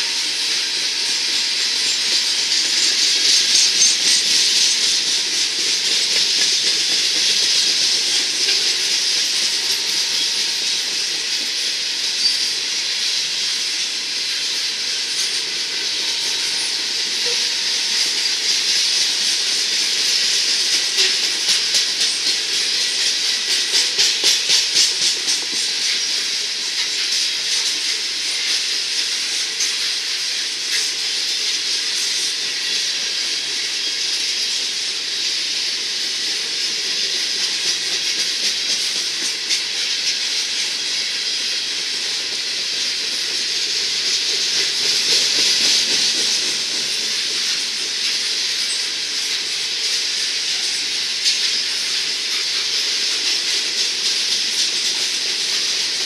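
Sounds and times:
freight train rolling past: 0.0s - 56.0s
wheels clattering over track: 34.6s - 56.0s.

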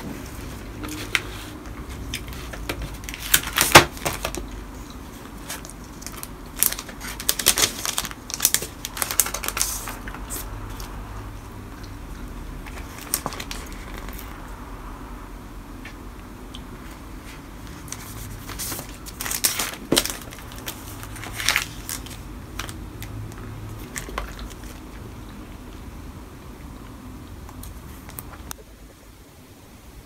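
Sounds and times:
plastic sleeve crinkling: 0.0s - 11.0s, 12.6s - 14.4s, 16.9s - 25.0s.

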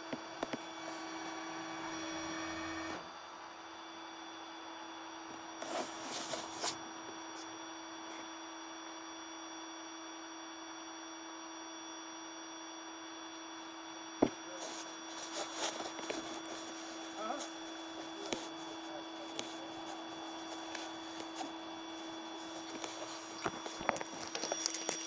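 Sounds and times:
steady hum: 12.9s - 25.0s.

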